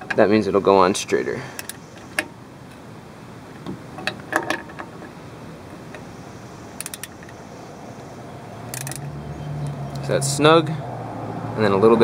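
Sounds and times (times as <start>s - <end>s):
metallic clicks: 1.6s - 2.3s, 6.8s - 7.4s, 8.7s - 10.1s
ratchet clicking: 6.8s - 7.4s, 8.7s - 9.1s.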